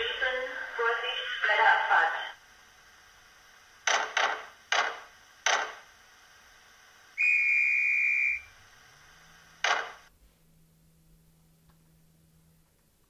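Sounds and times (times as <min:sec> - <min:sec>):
short noise bursts: 0:07.1 - 0:10.1
high whistle blast: 0:07.2 - 0:08.6.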